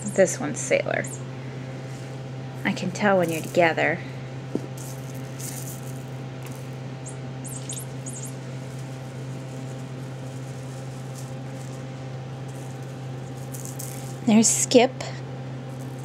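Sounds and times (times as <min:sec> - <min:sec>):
steady low hum: 0:00.0 - 0:16.0
kittens scratching and pattering: 0:02.7 - 0:03.7, 0:04.6 - 0:06.8, 0:07.6 - 0:14.3
scratchy rustles: 0:03.2 - 0:03.7, 0:04.7 - 0:06.8, 0:07.6 - 0:14.3.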